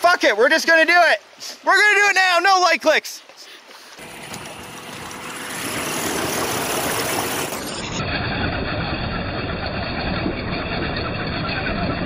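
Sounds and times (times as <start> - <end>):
tyres splashing through water: 0.0 - 8.0.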